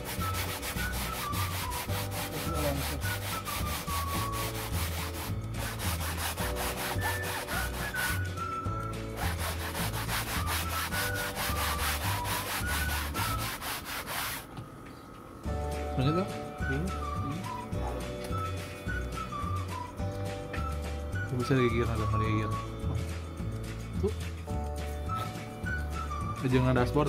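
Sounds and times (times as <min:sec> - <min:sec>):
cloth scrubbing fabric: 0:00.0 - 0:08.5, 0:09.1 - 0:14.5
background music with bass: 0:00.0 - 0:13.8, 0:15.5 - 0:27.0.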